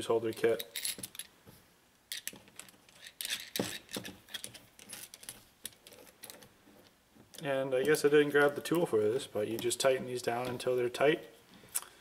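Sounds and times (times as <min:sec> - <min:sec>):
small metal hardware clinking: 0:00.3 - 0:01.3.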